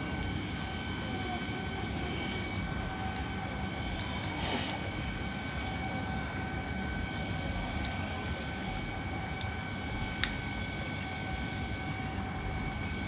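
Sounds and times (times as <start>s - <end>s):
fire crackling: 0.0s - 13.0s
wood fire rushing rumble: 0.0s - 13.0s.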